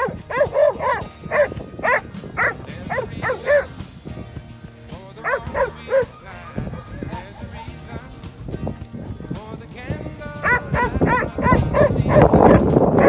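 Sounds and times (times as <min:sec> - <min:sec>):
dog barking: 0:00.0 - 0:03.8, 0:05.2 - 0:07.9, 0:10.4 - 0:13.0
background music: 0:00.0 - 0:13.0.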